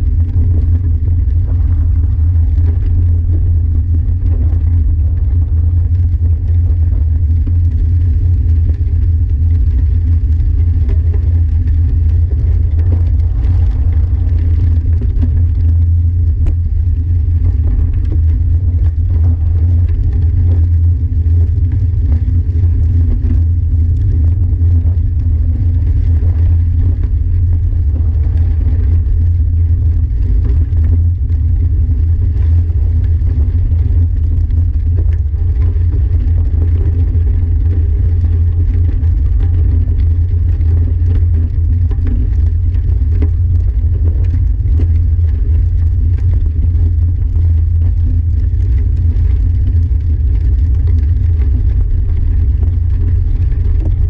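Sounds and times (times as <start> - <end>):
gravel crunching under tyres: 0.0 - 40.6
wind and tyre rumble: 0.0 - 54.0.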